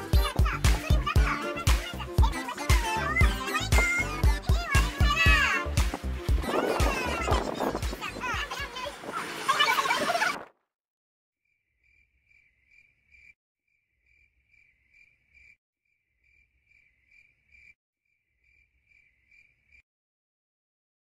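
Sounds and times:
crickets chirping: 11.8s - 13.4s, 14.0s - 15.6s, 16.2s - 17.8s, 18.4s - 19.8s.

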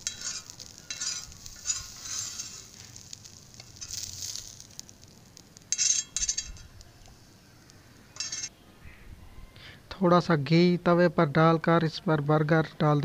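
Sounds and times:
metal knife scraping: 0.0s - 4.1s, 5.7s - 6.8s, 8.2s - 8.5s.

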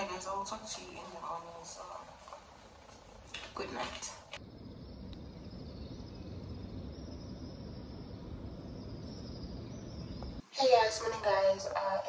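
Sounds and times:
faint high-pitched chirring: 0.0s - 12.0s
low rumble: 4.4s - 10.4s.

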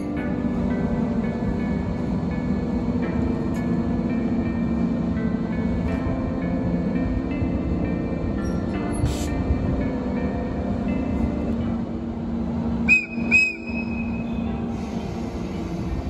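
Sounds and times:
electric locomotive humming: 0.0s - 16.0s
short sharp whistle toots: 12.9s - 14.1s.

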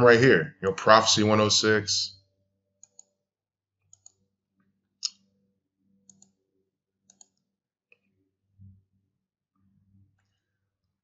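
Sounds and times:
computer mouse clicking: 2.8s - 3.2s, 3.8s - 4.2s, 6.0s - 6.4s, 7.0s - 8.0s.

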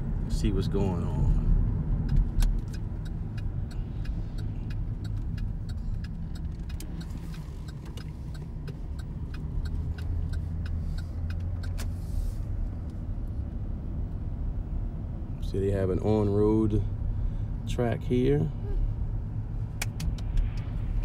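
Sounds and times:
car road rumble: 0.0s - 21.0s
light regular ticking: 1.7s - 12.0s.

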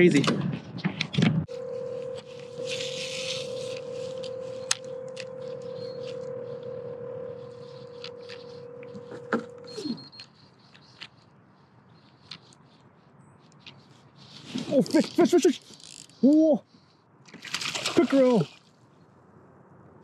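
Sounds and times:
fishing reel cranking whine: 1.5s - 9.9s.

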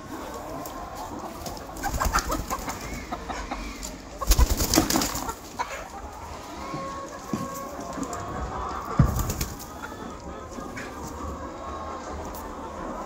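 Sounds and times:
hens clucking: 0.0s - 13.0s.

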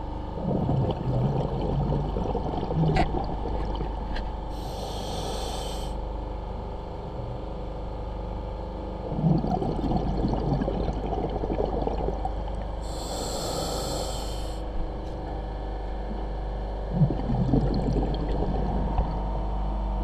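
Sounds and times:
exhaled bubbles rumbling underwater: 0.0s - 5.8s, 8.6s - 20.0s
hissing regulator inhalation: 4.5s - 6.0s, 12.8s - 14.6s.

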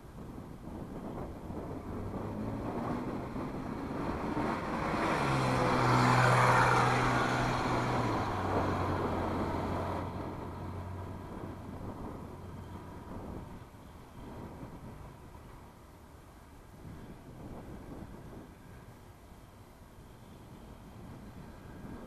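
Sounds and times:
car driving past: 1.8s - 11.7s.

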